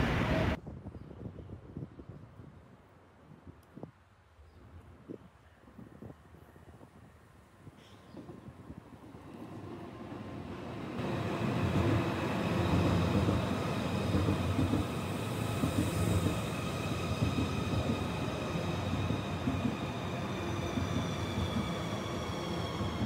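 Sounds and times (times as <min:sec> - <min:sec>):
train wheels and rushing air: 0:00.0 - 0:00.6, 0:08.2 - 0:23.0.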